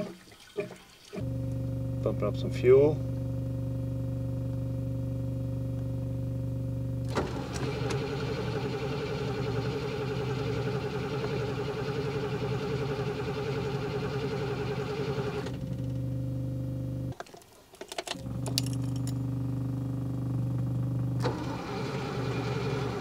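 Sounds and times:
steady hum: 1.2s - 17.1s
starter motor cranking: 7.0s - 15.9s, 18.0s - 19.2s, 21.2s - 23.0s.

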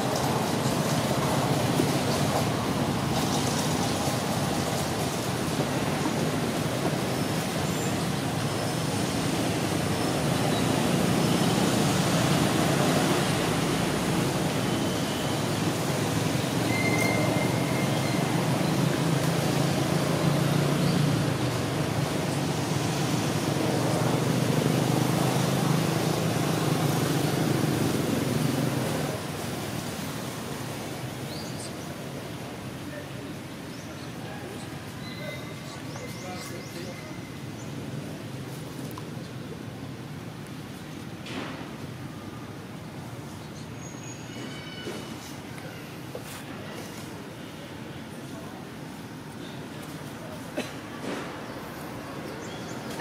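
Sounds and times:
low rumbling outdoor noise: 0.0s - 53.0s.

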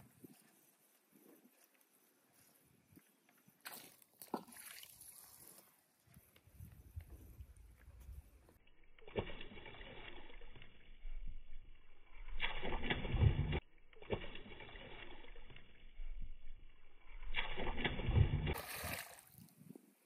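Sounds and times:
fish splashing in water: 17.3s - 19.4s.

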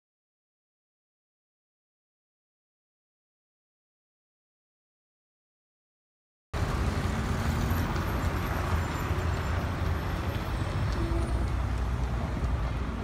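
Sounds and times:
city street traffic: 6.6s - 13.0s.

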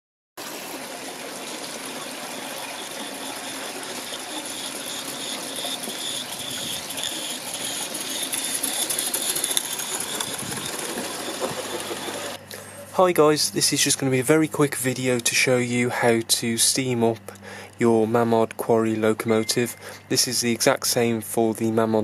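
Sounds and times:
steam hissing: 1.7s - 12.4s
fast mechanical patter: 1.9s - 12.4s.

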